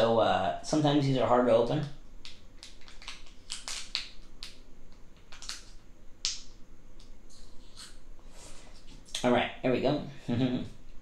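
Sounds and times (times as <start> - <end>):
plastic packet crinkling: 2.6 - 4.6.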